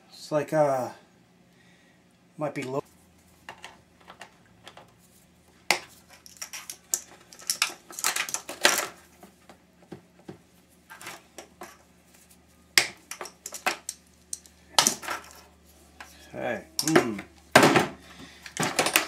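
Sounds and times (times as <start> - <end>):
metal parts clinking on workbench: 6.1 - 8.9, 13.1 - 15.4, 16.8 - 17.1.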